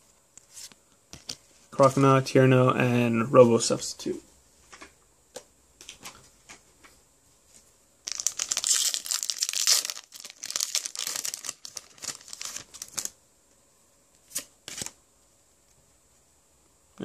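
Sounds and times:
wrapper rustling: 8.0 - 13.2
foil wrapper tearing and crinkling: 8.1 - 13.2.

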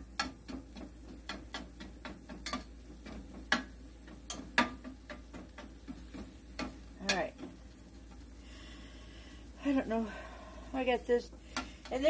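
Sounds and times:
clicks and taps in a metal pan: 0.0 - 8.2.

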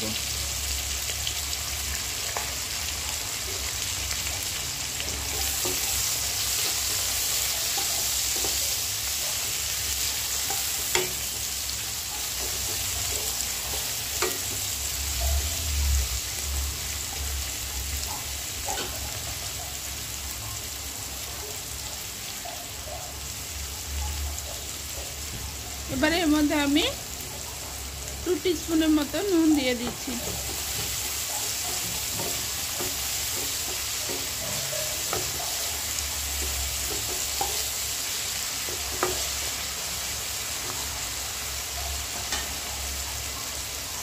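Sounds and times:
onions sizzling in oil: 0.0 - 44.0.

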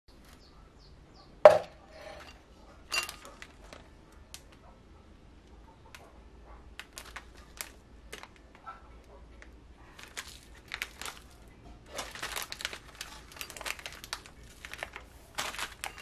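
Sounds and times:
packet knocking on table: 1.5 - 1.7
plastic wrappers crinkling: 2.9 - 4.6, 6.8 - 8.7, 9.3 - 16.0.

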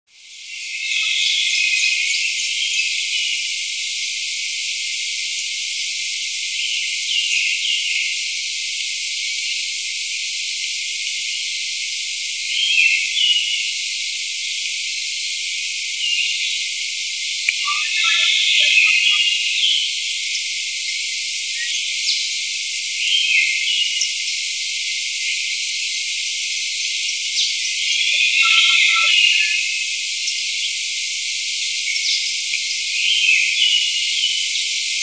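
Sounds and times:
bird chirps: 17.5 - 19.8, 27.7 - 29.7.

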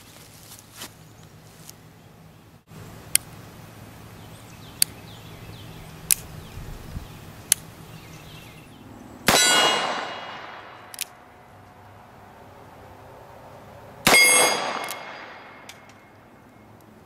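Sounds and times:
sharp metallic clicks: 6.0 - 6.3, 7.4 - 7.7, 9.3 - 11.2, 14.1 - 16.0
steel target ringing: 9.3 - 10.9, 14.0 - 16.2.

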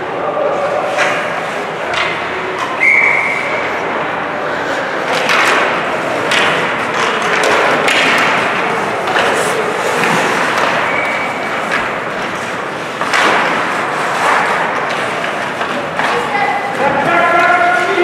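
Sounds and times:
voices: 0.0 - 18.0
skating noise: 0.1 - 18.0
hockey sticks hitting puck: 0.7 - 18.0
knocks against rink boards: 5.1 - 18.0.

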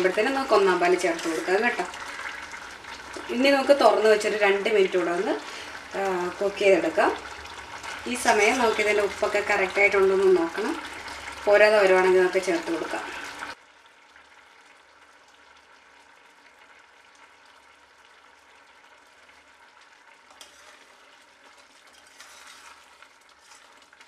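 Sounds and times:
ladle stirring: 0.0 - 10.0, 20.3 - 24.0
curry bubbling in a pot: 0.0 - 24.0.

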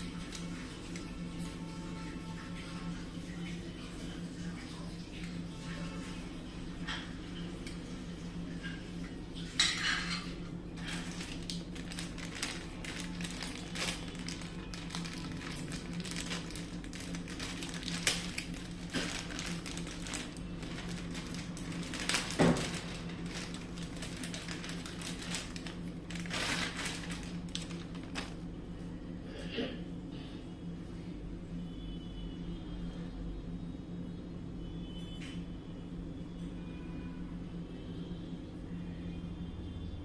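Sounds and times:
plastic bag crinkling: 10.8 - 28.5.

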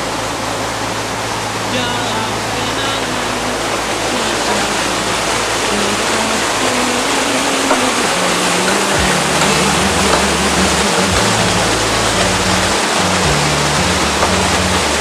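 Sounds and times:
stream rushing over rocks: 0.0 - 15.0
music with low bass notes: 8.9 - 15.0.

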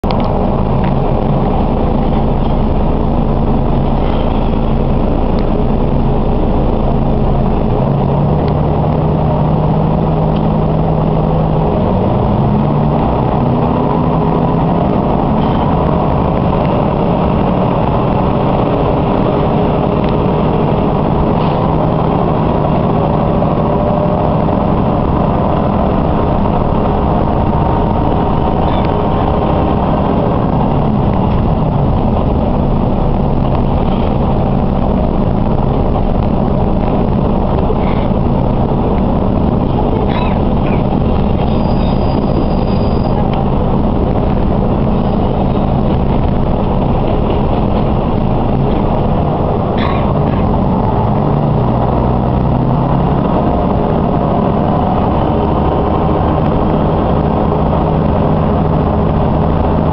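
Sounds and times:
diesel railcar engine: 0.0 - 59.9.

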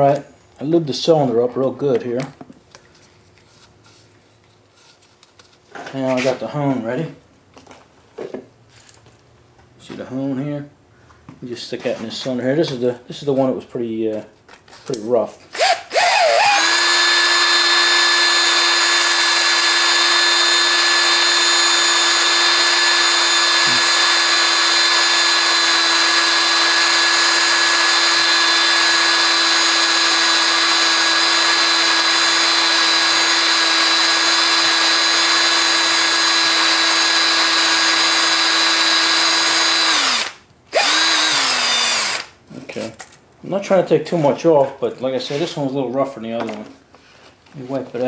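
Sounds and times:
electric drill honing cylinder: 15.6 - 42.3.

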